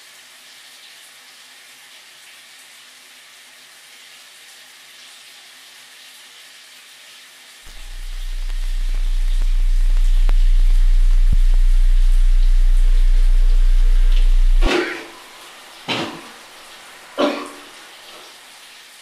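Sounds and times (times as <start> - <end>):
deep low drone: 7.7 - 15.3.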